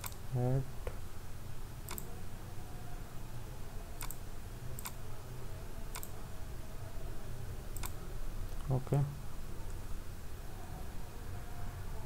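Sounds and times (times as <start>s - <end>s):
computer mouse clicks: 0.0s - 0.2s, 1.9s - 2.1s, 4.0s - 4.2s, 4.8s - 5.0s, 5.9s - 6.2s, 7.8s - 8.0s
low steady hum: 0.0s - 12.0s.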